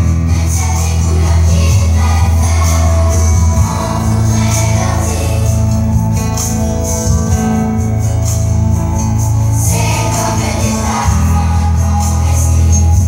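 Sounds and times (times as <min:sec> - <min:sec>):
young voices singing: 0:00.0 - 0:06.4, 0:09.4 - 0:13.0
pop band with heavy bass: 0:00.0 - 0:13.0.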